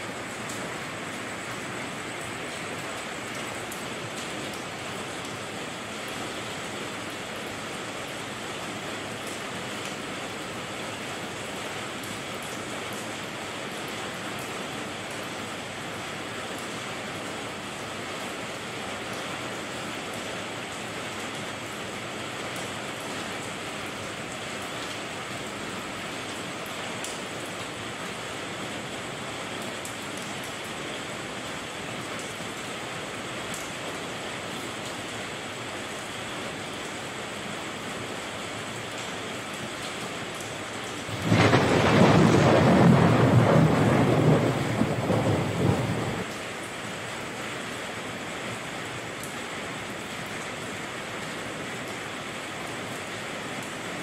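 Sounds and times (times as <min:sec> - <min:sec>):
steady rain hiss: 0:00.0 - 0:54.0
thunder rolling: 0:41.1 - 0:46.3.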